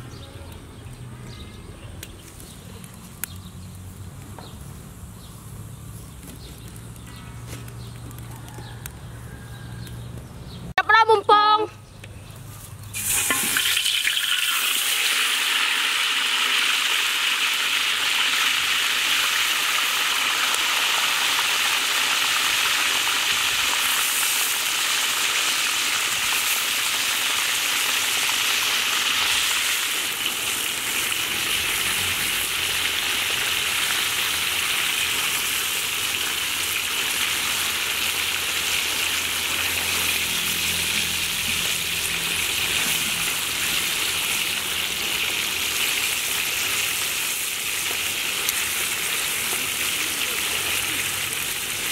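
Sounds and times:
fish sizzling in hot oil: 12.9s - 51.9s.

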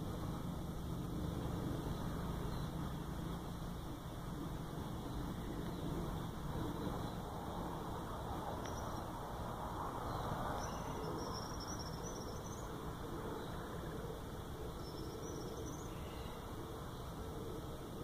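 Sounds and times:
steady background hiss: 0.0s - 18.0s.

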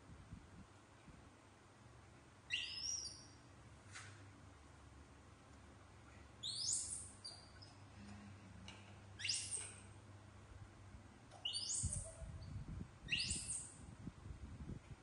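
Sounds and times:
baby monkeys squealing: 2.5s - 3.2s, 9.2s - 9.8s, 11.4s - 12.2s, 13.1s - 13.7s.

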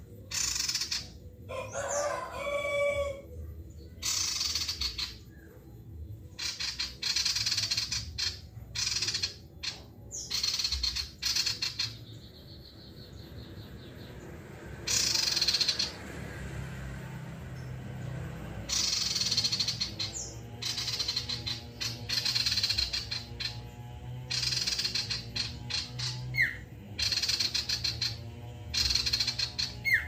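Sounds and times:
songbird high trills: 18.7s - 23.6s, 24.3s - 30.0s.

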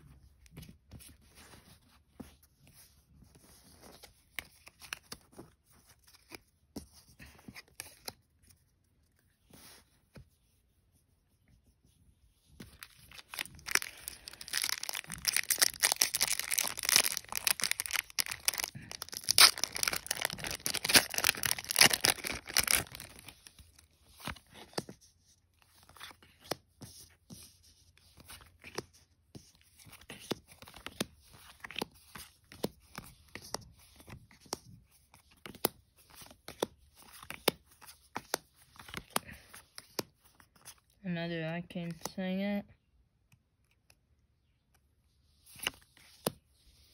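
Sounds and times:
foil wrapper tearing and crinkling: 12.8s - 23.6s
cards clicking and tapping: 29.9s - 40.7s.

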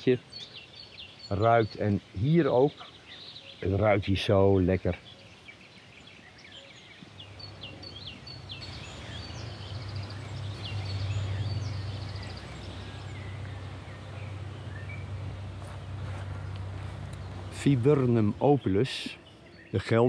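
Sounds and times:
small birds singing: 0.0s - 20.0s
low steady rumble: 7.4s - 18.4s.

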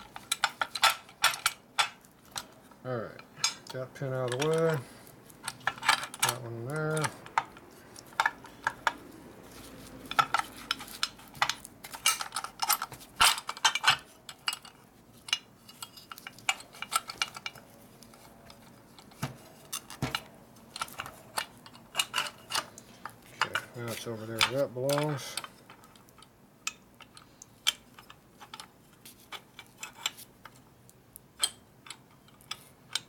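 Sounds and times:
metallic clicks of small parts: 0.0s - 2.6s, 3.4s - 9.2s, 9.8s - 33.0s.

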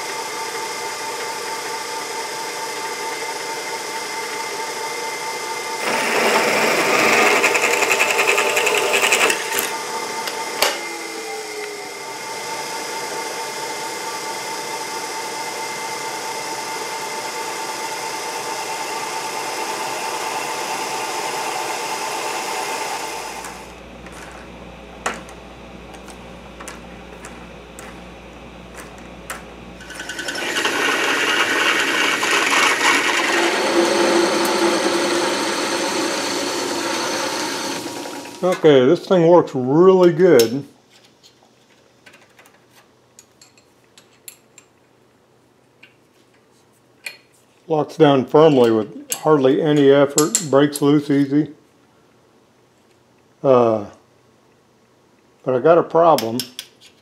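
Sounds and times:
drill press drilling into steel: 5.8s - 10.4s, 29.8s - 38.6s
metal lathe running: 5.8s - 24.5s, 26.6s - 38.6s.

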